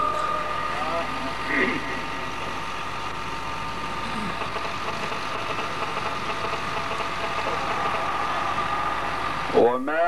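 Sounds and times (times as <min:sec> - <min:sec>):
faint constant tone: 0:00.0 - 0:10.0
faint voice: 0:04.0 - 0:04.5.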